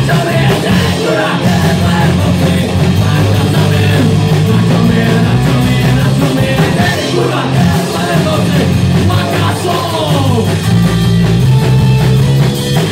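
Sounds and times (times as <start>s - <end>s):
distorted electric guitars: 0.0s - 12.9s
drum kit: 0.0s - 12.9s.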